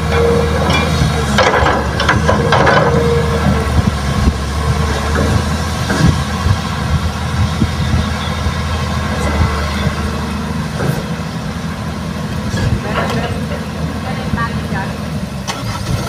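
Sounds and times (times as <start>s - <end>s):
dump truck idling: 0.0s - 16.0s
excavator diesel engine: 0.0s - 16.0s.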